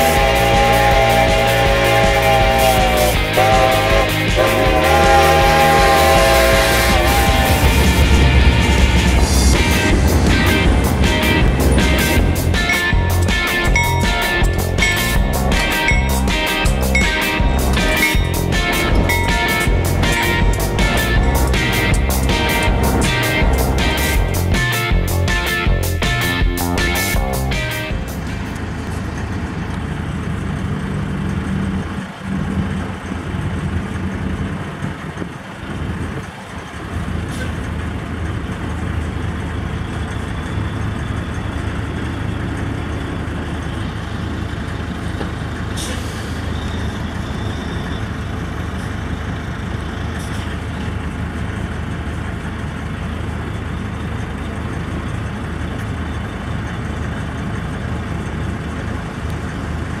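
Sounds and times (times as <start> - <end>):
diesel truck engine idling: 0.0 - 60.0
air brake hisses: 45.7 - 47.8.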